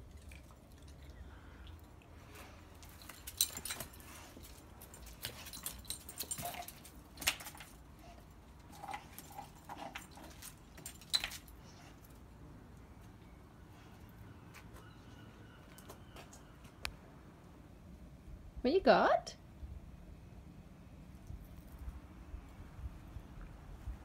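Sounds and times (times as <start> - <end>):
dog claws and tag clinking: 2.7 - 12.2.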